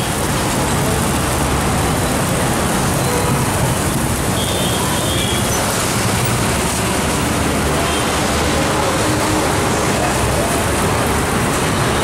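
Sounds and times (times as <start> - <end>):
gas burners roaring: 0.0 - 12.0
street traffic: 0.0 - 12.0
faint voices: 7.5 - 11.5.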